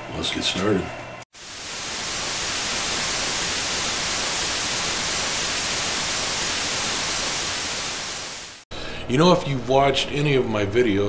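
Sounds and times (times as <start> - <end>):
television static hiss: 1.4 - 8.6.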